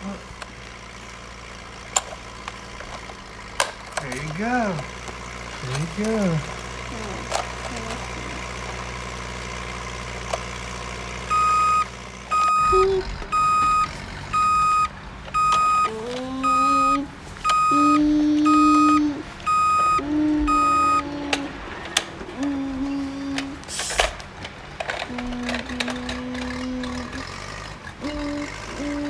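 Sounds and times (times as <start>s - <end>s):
low electronic engine tone: 0.0s - 29.0s
toy truck reversing beep: 11.2s - 24.1s, 25.1s - 29.0s.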